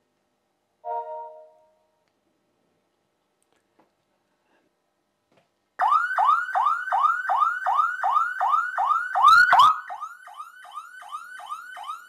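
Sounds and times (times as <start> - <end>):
alarm siren wailing: 5.8 - 12.0.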